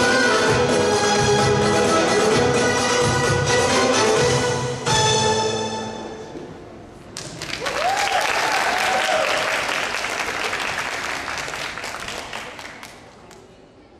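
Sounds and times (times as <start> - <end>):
audience applause: 7.2 - 13.3
voices cheering: 7.6 - 9.7.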